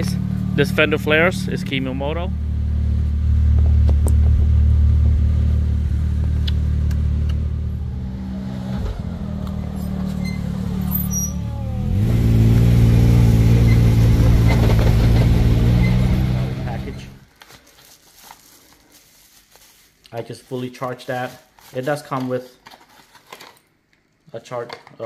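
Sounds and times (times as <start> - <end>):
engine running and revving: 0.0 - 17.2.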